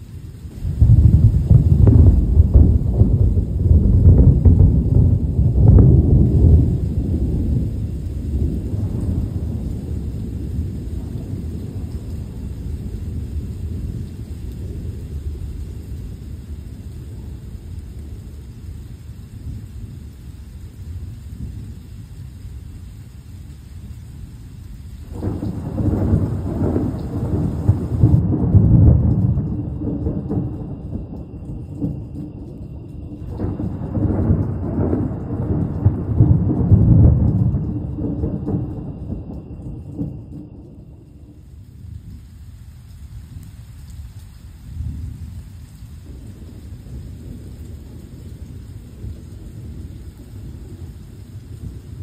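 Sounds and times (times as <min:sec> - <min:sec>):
rain falling: 0:00.0 - 0:52.0
thunder rumbling: 0:00.0 - 0:52.0.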